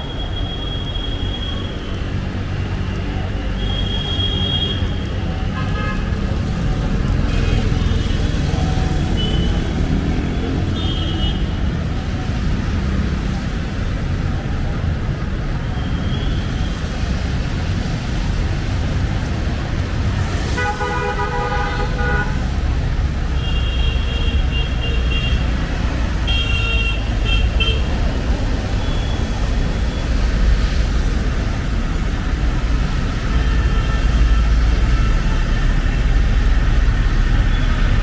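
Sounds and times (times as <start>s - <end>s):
rumble of passing vehicles: 0.0s - 38.0s
vehicle horn sounding: 20.6s - 22.4s.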